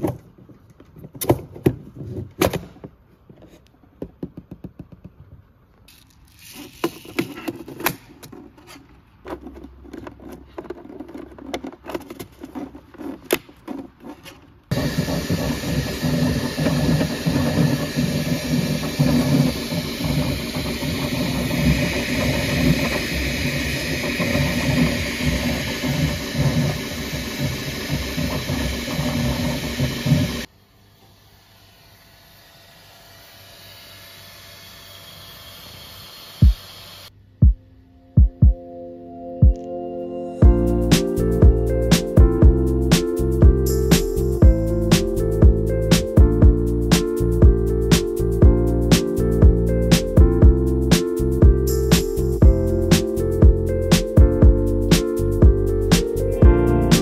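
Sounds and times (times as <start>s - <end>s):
plastic parts clicking and rattling: 5.8s - 14.6s.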